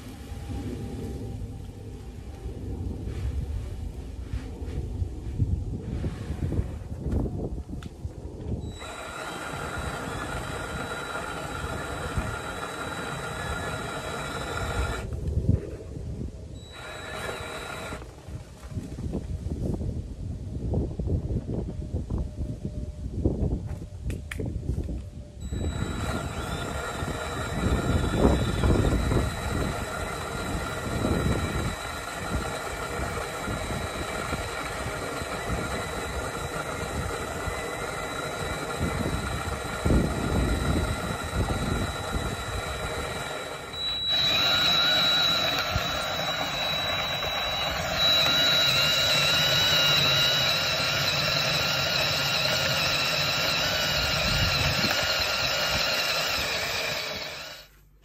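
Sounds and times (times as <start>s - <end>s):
high-pitched whine: 0.0s - 18.1s, 24.6s - 57.8s
drill driving grain mill: 8.6s - 15.2s, 16.6s - 18.1s, 25.4s - 57.9s.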